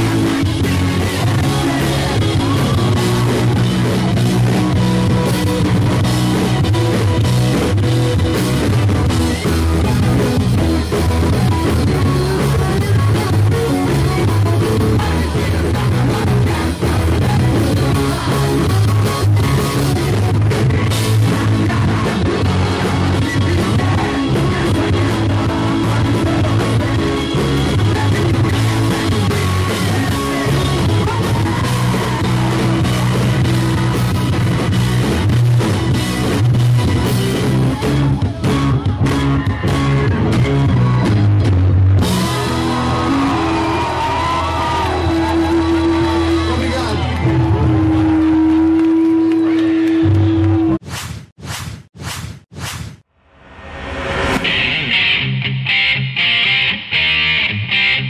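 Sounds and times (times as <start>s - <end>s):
person singing: 0.0s - 7.2s, 9.2s - 35.3s
live rock band playing: 0.0s - 50.8s, 54.0s - 58.0s.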